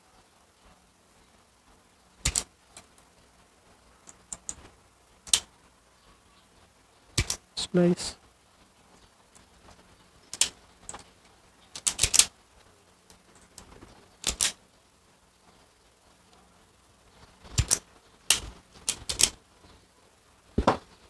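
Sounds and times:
wire stripper clicking: 0:13.6 - 0:14.6.

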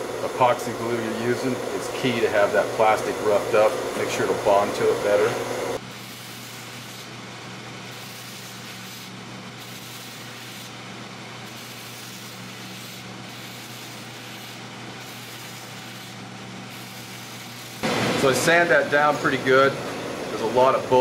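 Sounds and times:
sanding drum grinding plastic: 0:07.9 - 0:10.8, 0:11.4 - 0:17.8.

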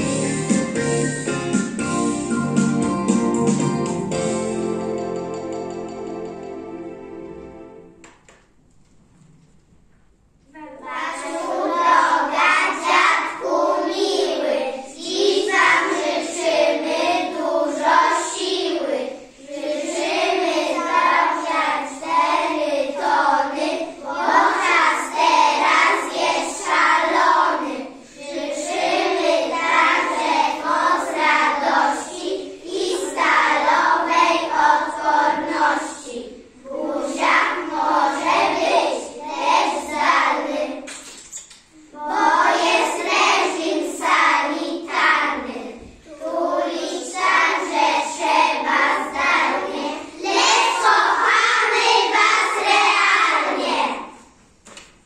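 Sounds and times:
children singing in unison: 0:11.0 - 0:40.9, 0:41.9 - 0:54.2.

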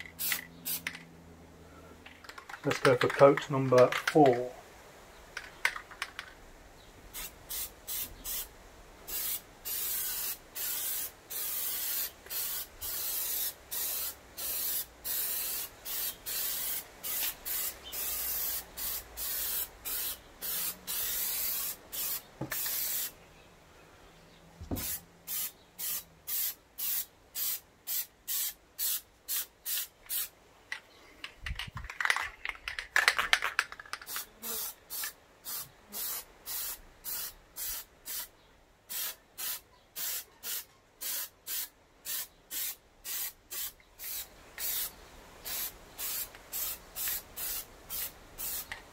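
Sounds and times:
aerosol can spraying: 0:09.1 - 0:23.1, 0:24.7 - 0:30.3, 0:45.5 - 0:48.8.

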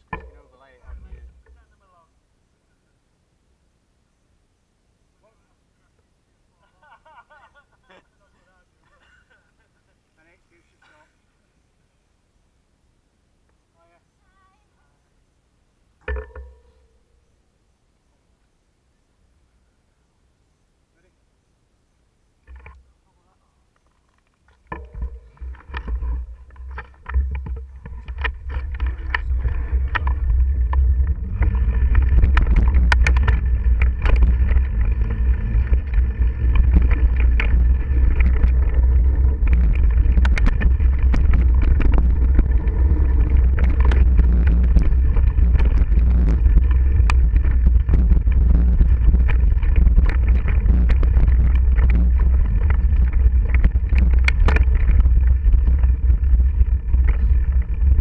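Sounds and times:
bike clicks and rattles: 0:23.8 - 0:58.0
wind buffeting microphone: 0:24.8 - 0:58.0.

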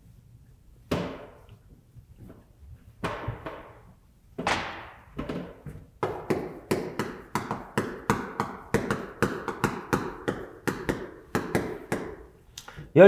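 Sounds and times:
chalk tapping on blackboard: 0:06.0 - 0:12.3.

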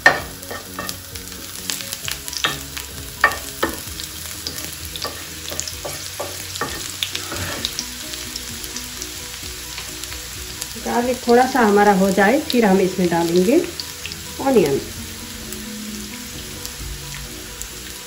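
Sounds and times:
wooden spoon stirring in pan: 0:00.0 - 0:07.9
garlic sizzling in oil: 0:00.0 - 0:18.0.

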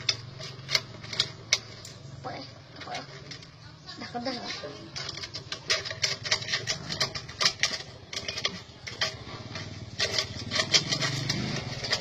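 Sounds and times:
small engine running: 0:05.7 - 0:12.0.

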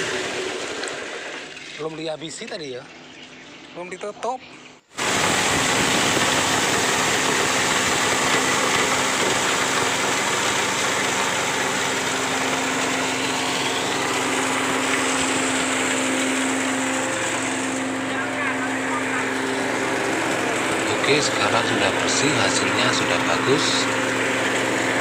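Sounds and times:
coffee huller machine running: 0:00.0 - 0:02.1, 0:05.0 - 0:25.0
beans streaming from chute: 0:05.0 - 0:25.0.

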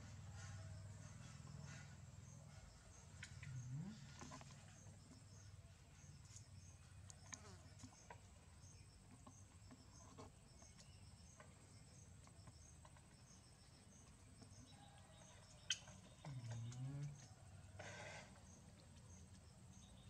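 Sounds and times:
insects chirping: 0:00.1 - 0:20.0
short low vocal sound: 0:16.2 - 0:17.3.

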